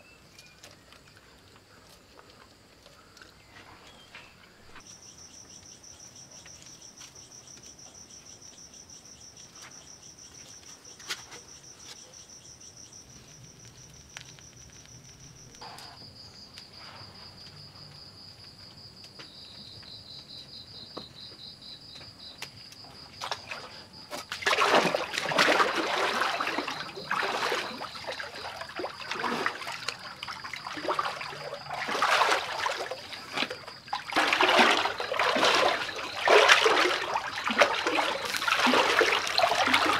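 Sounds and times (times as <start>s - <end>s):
crickets chirping: 0.0s - 39.9s
water splashing in a pool: 23.2s - 39.9s.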